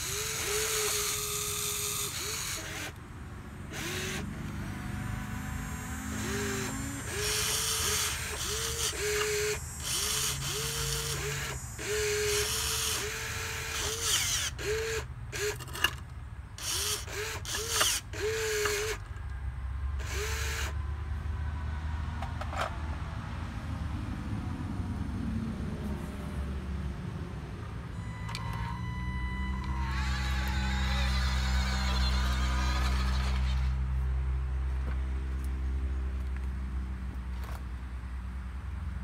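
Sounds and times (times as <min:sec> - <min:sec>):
electric motors whining in bursts: 0:00.0 - 0:03.0, 0:03.6 - 0:15.8, 0:16.6 - 0:19.0, 0:20.0 - 0:20.8, 0:27.9 - 0:34.0.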